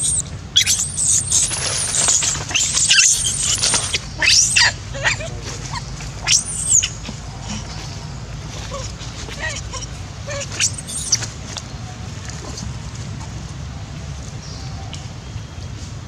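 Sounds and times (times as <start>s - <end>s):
baby monkey screaming: 0.0s - 7.1s, 8.7s - 11.2s.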